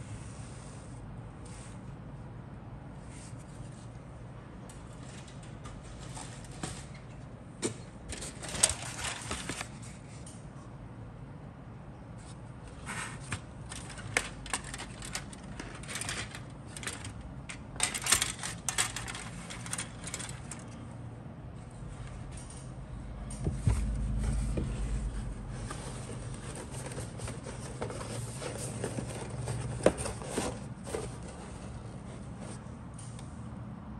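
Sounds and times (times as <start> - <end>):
plastic sprues clicking and rustling: 4.7 - 10.4, 12.8 - 20.8
dull thump with low rumble: 23.4 - 25.9.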